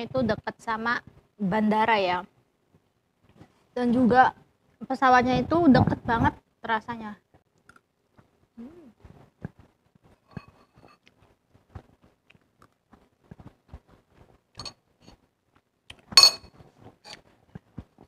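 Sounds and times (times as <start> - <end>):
chewing and mouth sounds: 7.6 - 14.5, 16.9 - 18.0
spoon clinking against bowl: 16.2 - 16.5.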